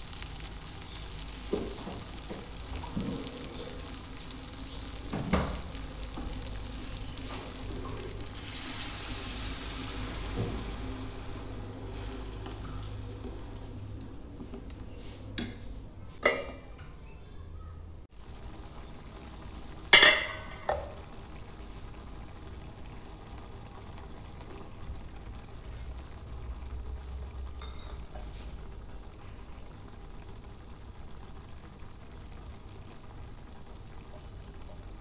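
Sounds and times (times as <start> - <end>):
broth simmering hiss: 0.0 - 14.1, 18.1 - 35.0.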